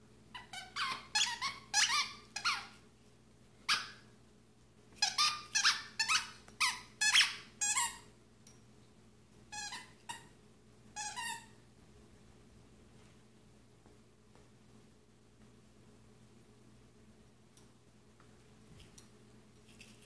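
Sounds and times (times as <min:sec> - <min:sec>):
dog toy squeaking: 0:00.3 - 0:02.8, 0:03.7 - 0:04.0, 0:05.0 - 0:08.1, 0:09.5 - 0:10.3, 0:11.0 - 0:11.6.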